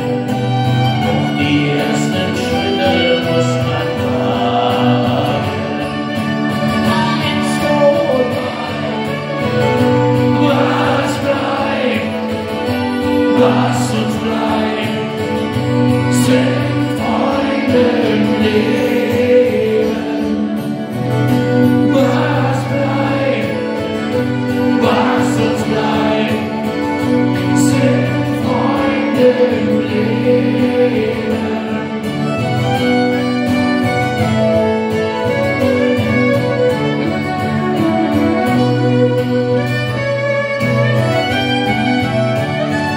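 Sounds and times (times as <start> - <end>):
bowed violin: 0.0 - 42.9
strummed acoustic guitar: 0.0 - 42.9.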